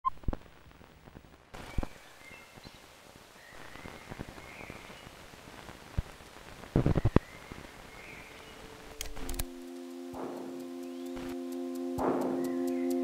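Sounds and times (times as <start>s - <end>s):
crackles and pops: 0.0s - 13.0s
faint hiss: 0.1s - 13.0s
held music chord: 8.2s - 13.0s.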